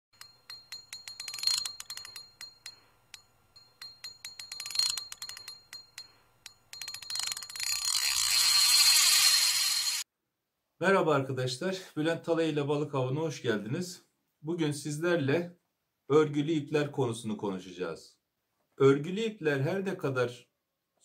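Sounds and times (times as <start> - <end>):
high-pitched reel whir: 0.2 - 10.0
fishing reel drag clicking: 1.2 - 3.2, 4.4 - 5.8, 6.4 - 10.0.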